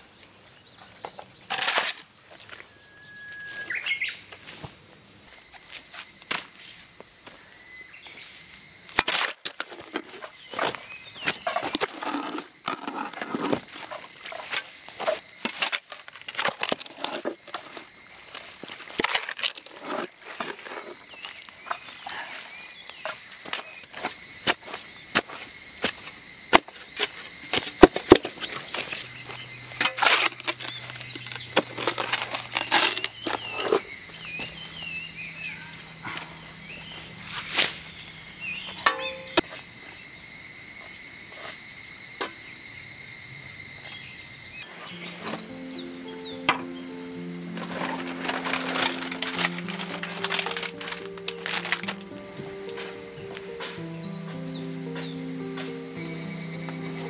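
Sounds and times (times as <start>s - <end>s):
shovel digging wet soil: 47.6s - 51.9s.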